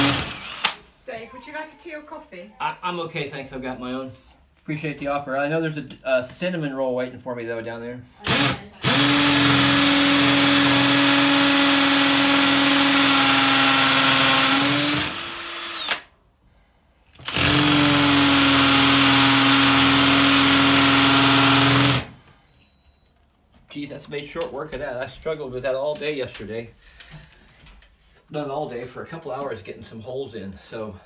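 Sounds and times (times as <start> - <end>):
drill boring into concrete: 0.0 - 0.8, 8.2 - 16.1, 17.2 - 22.2.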